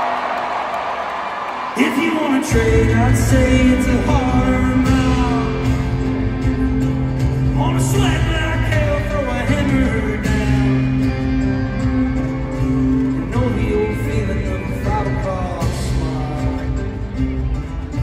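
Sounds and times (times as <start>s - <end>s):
man singing: 1.8s - 6.4s, 7.4s - 11.5s, 13.0s - 17.3s
live band playing: 2.3s - 18.0s.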